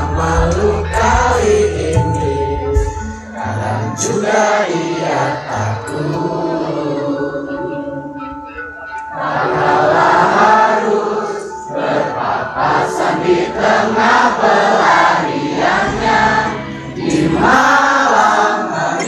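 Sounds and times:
live band music: 0.0s - 6.9s, 11.8s - 18.5s
crowd singing along: 0.0s - 19.0s.

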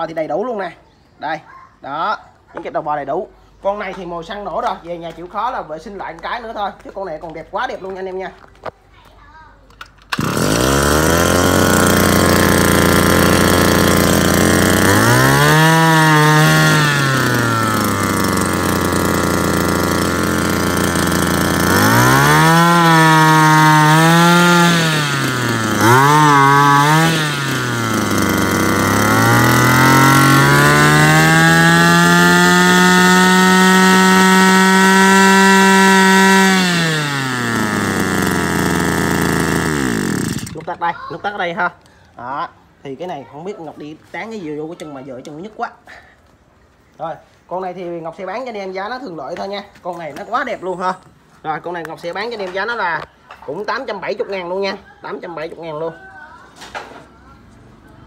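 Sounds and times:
brush-cutter engine revving: 9.8s - 40.9s.

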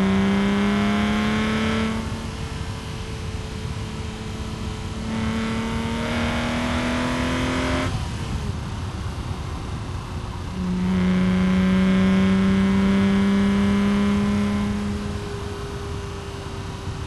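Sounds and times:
car engine exhaust drone: 0.0s - 17.0s.

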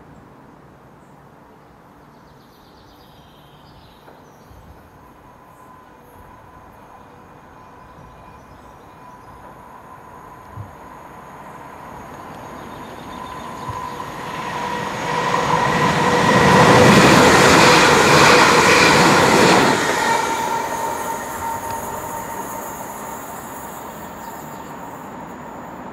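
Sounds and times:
train wheels rushing on rails: 9.2s - 25.9s.

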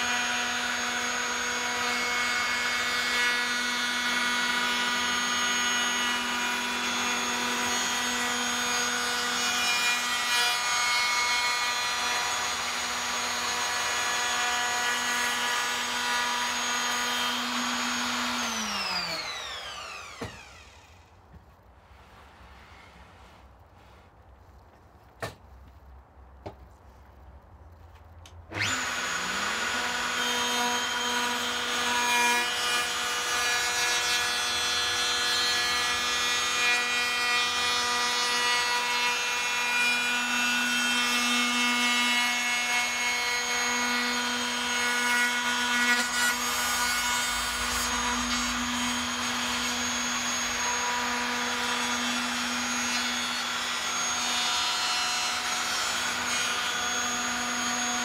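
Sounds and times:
electric router whining: 11.5s - 21.1s, 28.5s - 34.1s, 47.8s - 58.0s.

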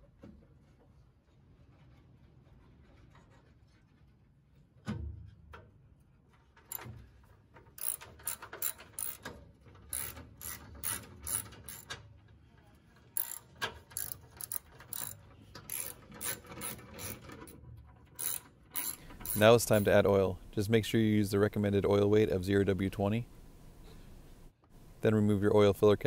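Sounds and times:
hand ratchet clicking: 7.8s - 9.3s, 9.9s - 12.0s, 13.2s - 17.6s, 18.2s - 20.1s.

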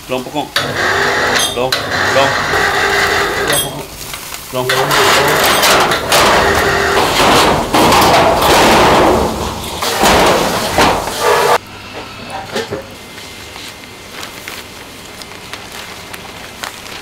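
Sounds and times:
metal sheet scraping over concrete: 0.5s - 13.1s
metal sheet rattling and clanging: 0.6s - 11.6s.

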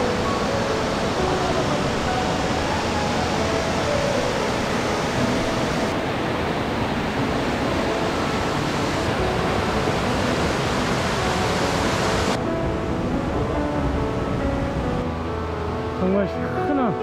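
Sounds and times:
stream rushing over rocks: 0.0s - 12.6s.

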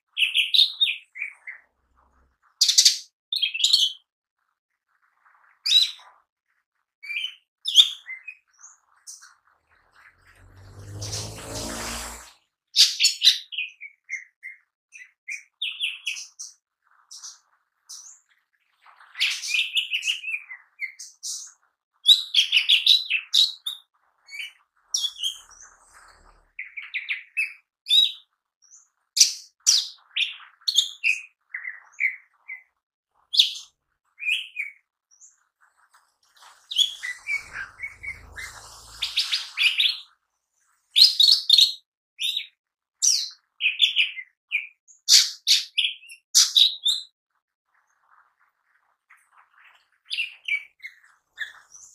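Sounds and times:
bird singing chirps and trills: 7.0s - 12.3s, 19.2s - 32.7s, 36.4s - 40.2s.

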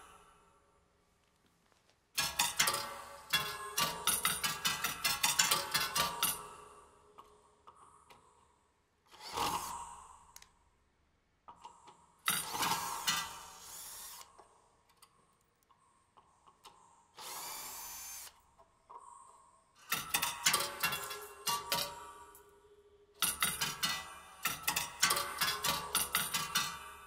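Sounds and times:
power drill running: 12.3s - 14.3s, 17.2s - 18.4s.

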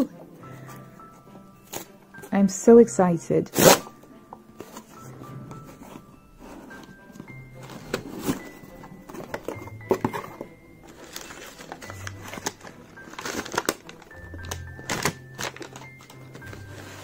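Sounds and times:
background music: 0.0s - 17.0s
paper crinkling: 7.6s - 17.0s.

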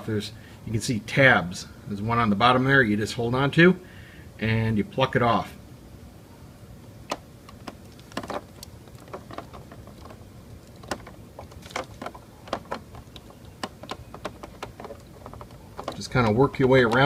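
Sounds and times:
fingers tapping on plastic: 7.1s - 17.0s.

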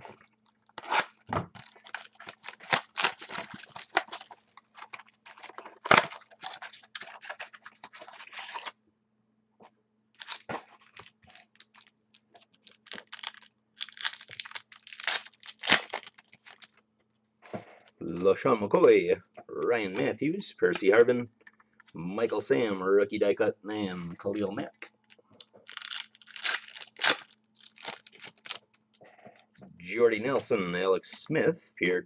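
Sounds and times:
foil wrappers tearing and crinkling: 0.6s - 8.7s, 10.2s - 16.8s, 25.0s - 28.7s.

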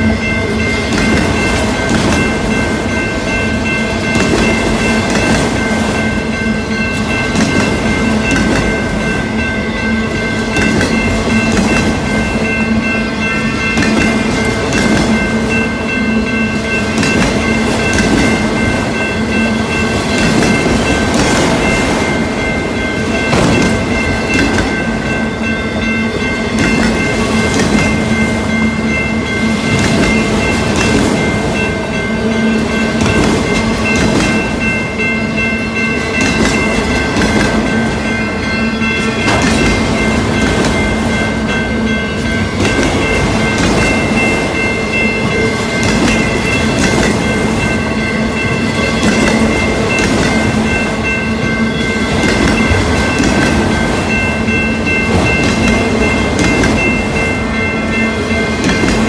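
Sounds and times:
crossing warning bell ringing: 0.0s - 59.0s
train wheels knocking over rail joints: 0.6s - 6.2s, 7.0s - 9.1s, 10.4s - 12.4s, 13.4s - 15.5s, 16.8s - 25.2s, 29.5s - 31.6s, 32.8s - 34.8s, 36.0s - 38.2s, 38.9s - 41.5s, 42.2s - 51.2s, 52.0s - 57.4s, 58.4s - 59.0s.

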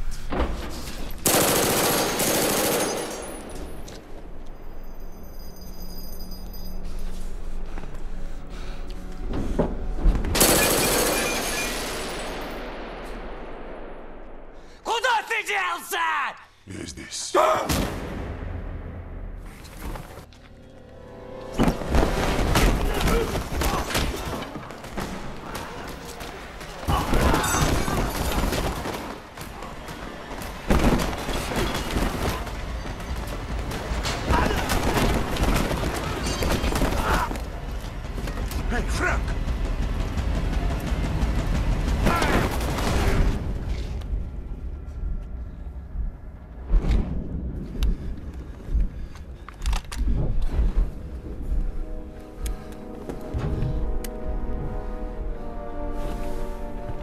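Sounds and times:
heavy fight blows and impacts: 21.6s - 52.2s.

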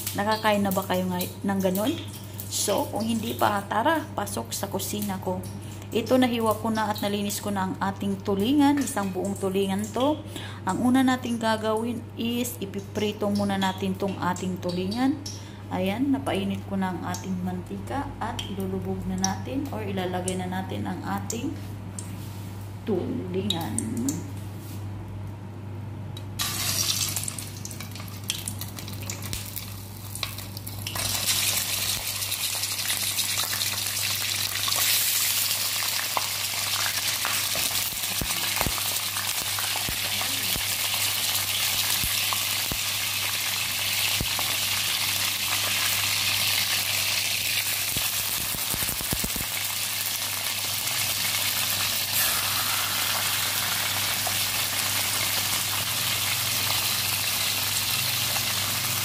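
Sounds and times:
fish frying in hot oil: 26.4s - 59.0s.

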